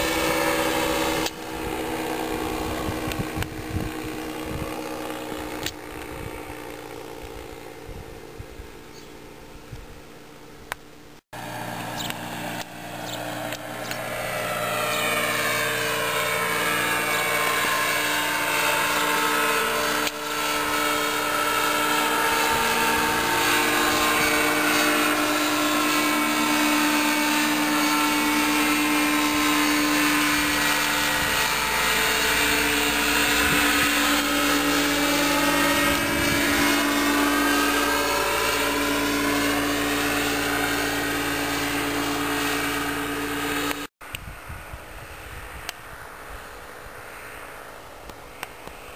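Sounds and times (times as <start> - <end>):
microlight engine and propeller droning: 0.0 - 48.9.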